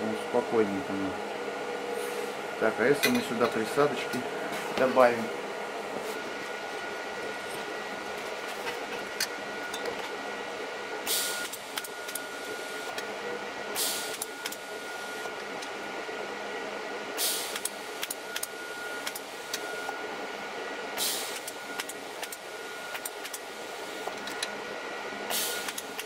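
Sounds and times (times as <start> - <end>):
steady high whine: 0.0 - 26.0
welding arc hissing: 11.0 - 11.8, 13.8 - 15.2, 17.2 - 18.2, 21.0 - 22.3.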